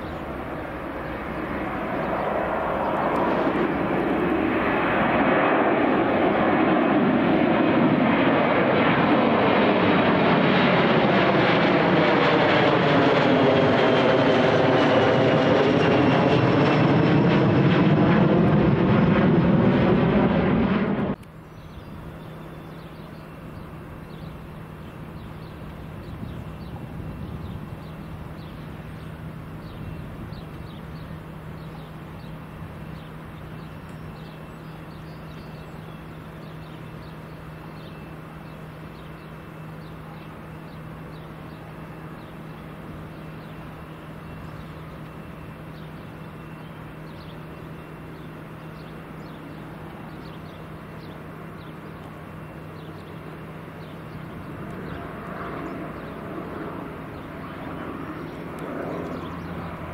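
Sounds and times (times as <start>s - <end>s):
small birds chirping: 0.0s - 5.0s, 21.1s - 59.9s
jet airliner approaching: 0.0s - 59.9s
low engine hum: 0.0s - 59.9s.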